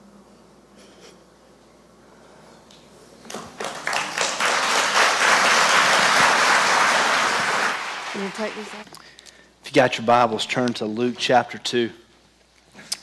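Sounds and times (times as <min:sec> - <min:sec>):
congregation applauding: 0:03.3 - 0:08.8.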